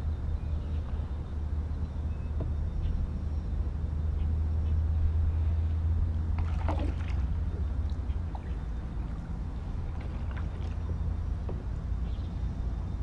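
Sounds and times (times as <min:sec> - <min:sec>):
steady low rumble: 0:00.0 - 0:13.0
paddle splashes and drips: 0:06.2 - 0:11.7.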